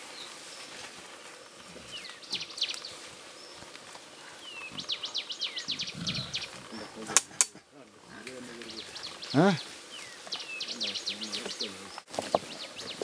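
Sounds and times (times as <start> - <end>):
forest background noise: 0.0 - 13.0
birds chirping: 1.8 - 13.0.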